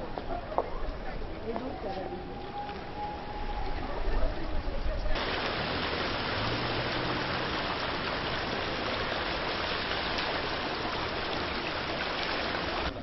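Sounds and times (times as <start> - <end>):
water churning up through drain: 5.2 - 13.0.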